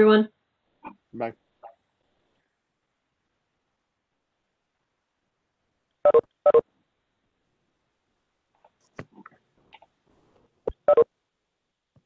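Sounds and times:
short electronic notification beeps: 0:06.1 - 0:06.6, 0:10.8 - 0:11.0
faint clicks and rustles: 0:08.5 - 0:10.8.

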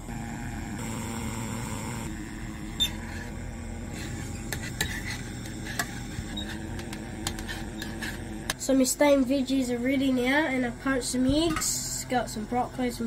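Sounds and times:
camping stove burning: 0:00.1 - 0:08.6.

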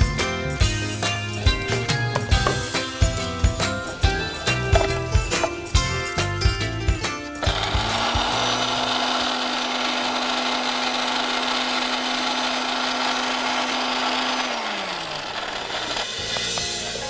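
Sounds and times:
mixer grinder grinding spices: 0:00.6 - 0:17.0
motor winding down: 0:02.4 - 0:05.9, 0:07.4 - 0:17.0.

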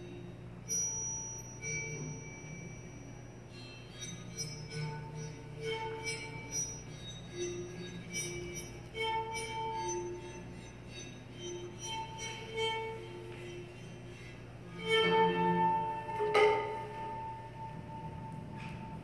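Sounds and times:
slow bowed-string music: 0:03.5 - 0:19.0.

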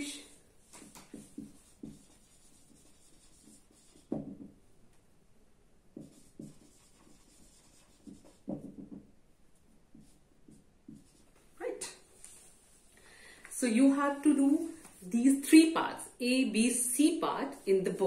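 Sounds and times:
marker writing on whiteboard: 0:00.0 - 0:04.7, 0:05.9 - 0:12.0.

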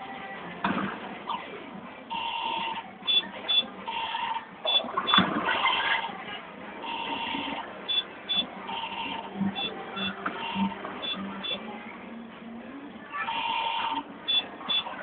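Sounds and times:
two-tone electronic beeps: 0:02.1 - 0:05.3, 0:06.8 - 0:11.7, 0:13.3 - 0:15.0.

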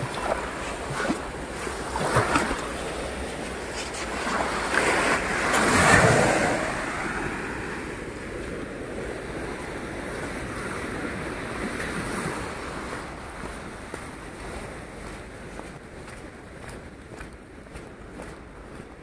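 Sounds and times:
wave breaking: 0:00.0 - 0:13.4
sea waves washing ashore: 0:00.0 - 0:19.0.

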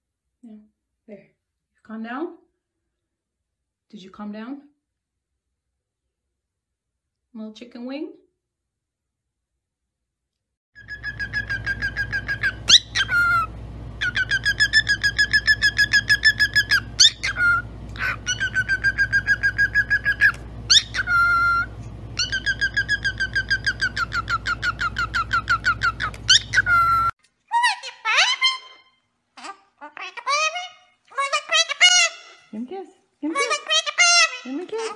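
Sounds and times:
cockatiel whistling calls: 0:10.8 - 0:27.1.

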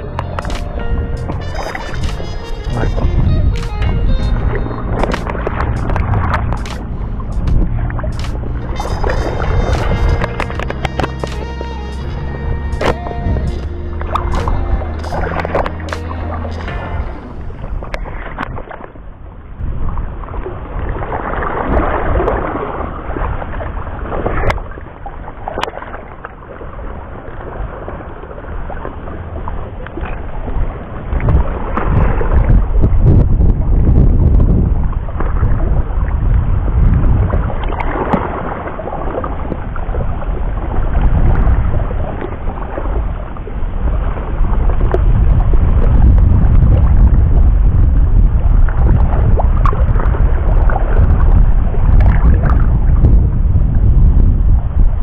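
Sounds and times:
wind buffeting microphone: 0:00.0 - 0:55.0
sharp clicks: 0:05.0 - 0:08.6
waves lapping on rocks: 0:14.0 - 0:33.2, 0:33.8 - 0:53.2.

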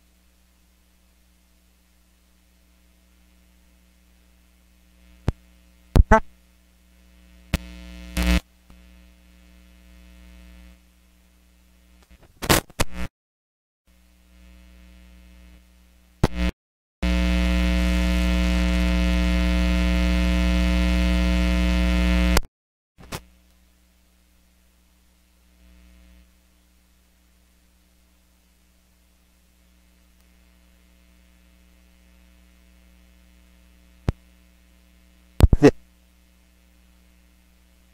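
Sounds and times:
electrical hum and crackle: 0:00.0 - 0:13.1, 0:13.9 - 0:37.9
sharp clicks and pops: 0:05.2 - 0:06.3, 0:07.5 - 0:08.8, 0:16.2 - 0:16.5
loud buzzing hum: 0:06.9 - 0:10.9, 0:14.0 - 0:22.5.

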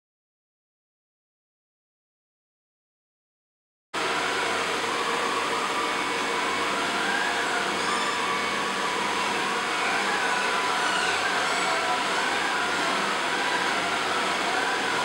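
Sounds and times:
robot vacuum whirring: 0:04.1 - 0:15.0.

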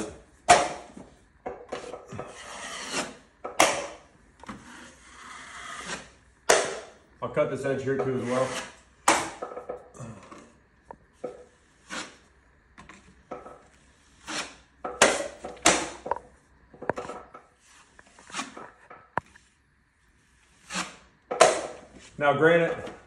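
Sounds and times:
drywall knife scraping compound: 0:01.7 - 0:07.0, 0:07.6 - 0:09.4, 0:11.2 - 0:16.2, 0:17.5 - 0:19.6, 0:20.2 - 0:23.0.

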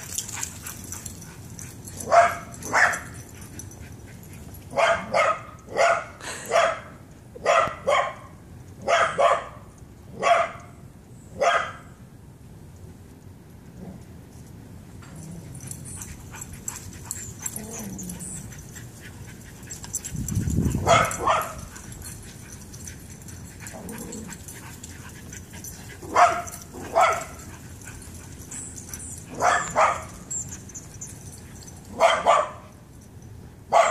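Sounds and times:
dog barking: 0:02.0 - 0:03.1, 0:04.7 - 0:09.6, 0:10.2 - 0:10.6, 0:11.4 - 0:11.9, 0:20.8 - 0:21.7, 0:26.1 - 0:27.4, 0:29.3 - 0:30.2, 0:31.9 - 0:32.7.

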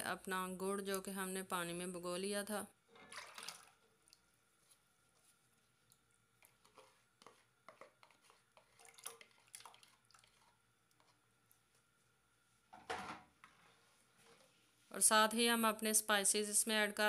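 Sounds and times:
water dripping and splashing: 0:03.0 - 0:04.4, 0:08.6 - 0:10.6
spoon scraping bowl: 0:06.4 - 0:11.2.

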